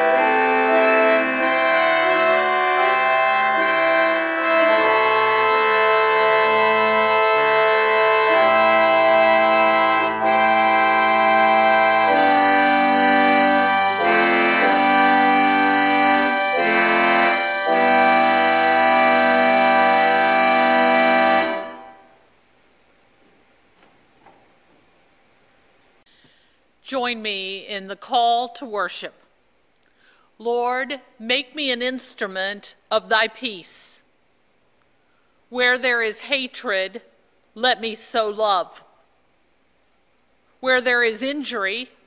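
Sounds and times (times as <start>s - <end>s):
church organ chords: 0.0s - 22.2s.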